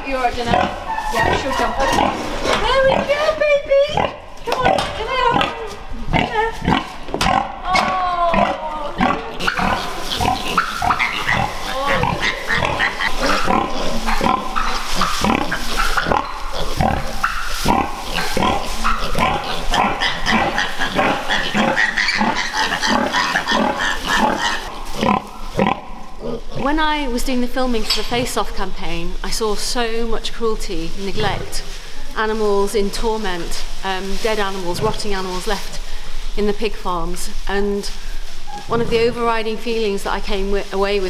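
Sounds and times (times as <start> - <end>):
straw rustling: 0.0 - 41.0
pigs grunting: 0.4 - 26.7
piglets squealing: 0.5 - 3.2, 6.2 - 26.6.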